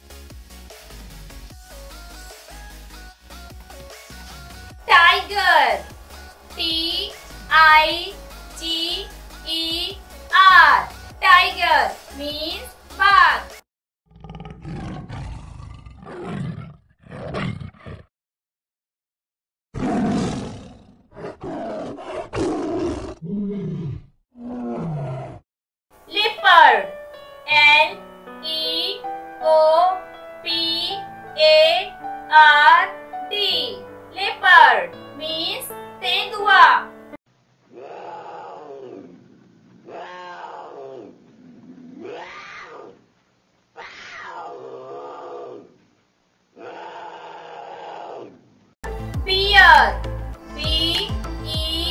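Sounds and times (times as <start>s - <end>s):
low growling calls: 14.1s - 18.1s, 19.8s - 25.4s, 37.7s - 43.1s, 43.8s - 45.8s, 46.5s - 48.5s
tiger roaring: 14.1s - 18.1s, 19.8s - 25.4s, 37.7s - 43.0s, 43.8s - 45.8s, 46.6s - 48.4s
wild cat calling: 37.7s - 43.0s, 43.8s - 45.8s, 46.6s - 48.4s.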